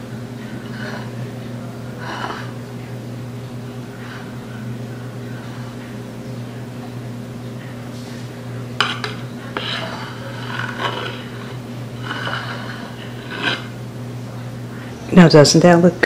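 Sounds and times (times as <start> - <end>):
steady low hum: 0.0 - 16.0
metal spatula scraping: 8.8 - 13.8.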